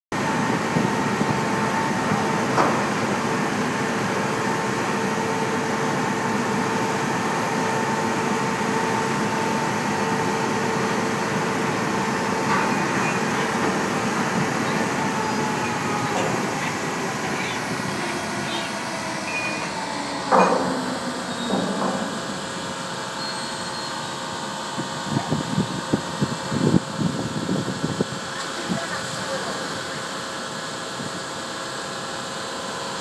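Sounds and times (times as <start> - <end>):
ship machinery hum: 0.2 - 33.0
two-pitch whine: 12.0 - 24.4.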